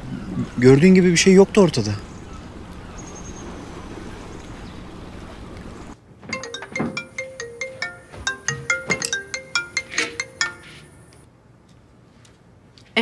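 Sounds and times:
mobile phone ringtone: 6.4 - 11.0.

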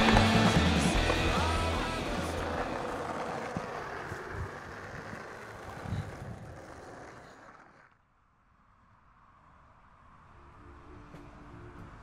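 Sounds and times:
skateboard knocks: 0.0 - 7.6
skateboard wheels rolling on concrete: 0.0 - 9.6.

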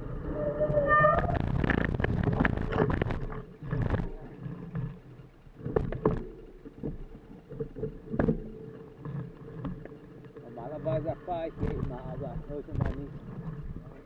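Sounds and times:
sharp clicks and thumps: 1.1 - 4.9, 5.6 - 10.0, 11.0 - 14.0
mountain bike rattling and knocking: 5.6 - 13.2.

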